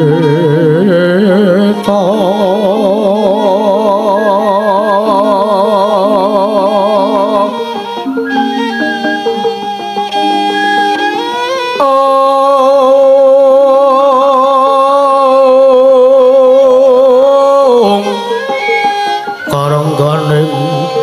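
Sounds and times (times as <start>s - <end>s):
lower voice singing: 0.0s - 9.4s, 11.7s - 21.0s
voice holding long note: 0.0s - 21.0s
gamelan ensemble music: 5.0s - 11.8s, 17.9s - 21.0s.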